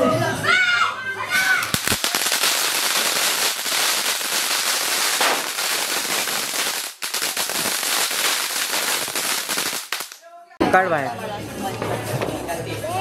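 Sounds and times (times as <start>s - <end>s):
firecrackers crackling: 1.3s - 10.2s.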